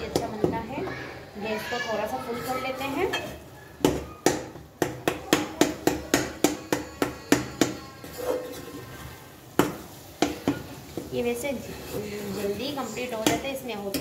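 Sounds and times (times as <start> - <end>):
metal spoon clanking on pan: 2.4 - 11.1, 13.1 - 14.0.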